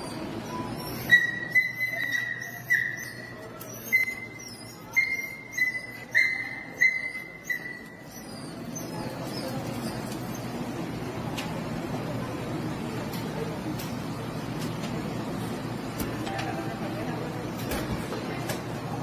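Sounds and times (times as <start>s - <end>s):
dog yelping: 0.0s - 10.6s.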